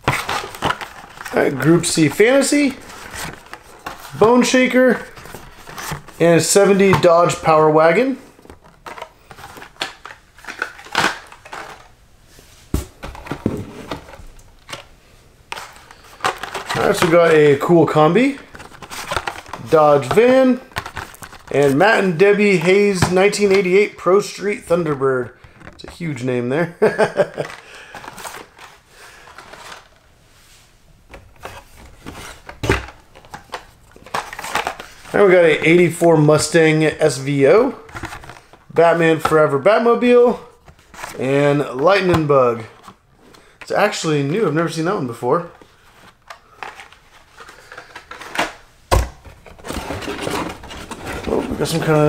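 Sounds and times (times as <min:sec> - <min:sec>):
plastic packaging rubbing: 0:00.0 - 0:06.2, 0:15.6 - 0:23.5, 0:49.4 - 0:52.0
packaging rustling: 0:00.0 - 0:12.0, 0:15.5 - 0:30.1, 0:31.1 - 0:35.9, 0:37.6 - 0:39.4, 0:40.1 - 0:43.7, 0:45.5 - 0:52.0.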